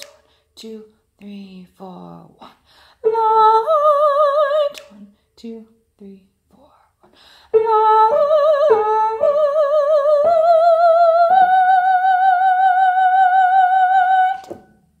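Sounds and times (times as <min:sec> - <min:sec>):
high voice singing with vibrato: 0:07.5 - 0:14.6.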